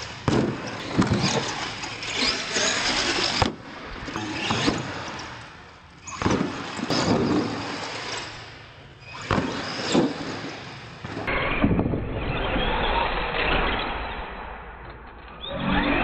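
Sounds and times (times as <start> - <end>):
truck banging over ramps: 0.2 - 8.5
toy truck motor whine: 1.2 - 3.4.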